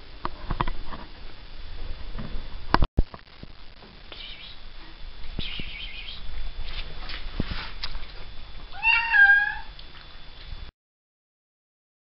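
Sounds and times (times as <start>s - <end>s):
soft rustles: 4.8s - 8.6s
cat meowing: 8.7s - 9.7s.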